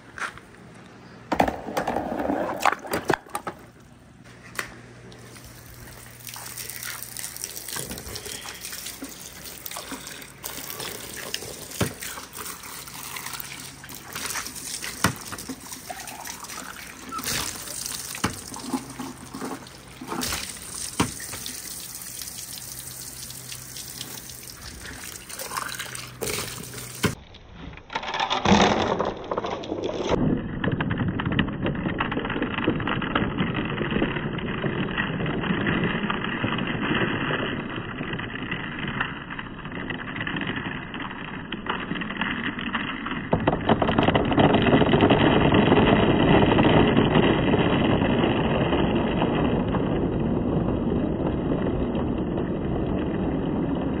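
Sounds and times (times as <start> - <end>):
water splashing and trickling: 5.2 - 27.2.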